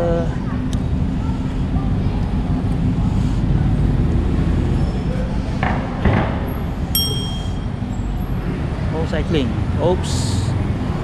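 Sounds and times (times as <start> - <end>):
passing traffic: 0.0 - 11.0
wind and road rumble: 0.0 - 11.0
short metallic ringing tone: 7.0 - 7.9.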